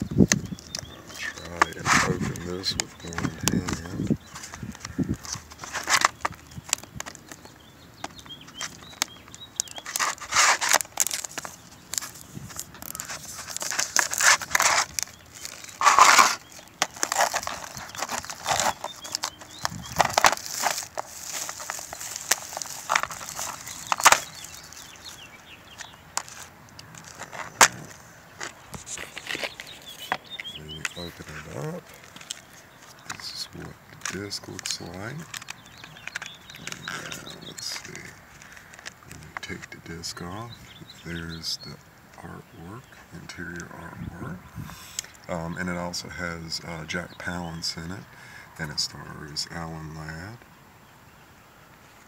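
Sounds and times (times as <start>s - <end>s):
plastic wrapping crinkling and tearing: 0.0s - 7.6s, 8.5s - 39.7s.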